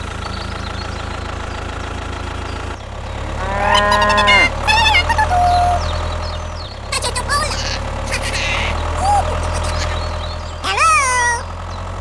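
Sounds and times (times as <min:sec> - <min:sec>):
tractor engine humming: 0:00.0 - 0:12.0
cow mooing: 0:03.3 - 0:04.6.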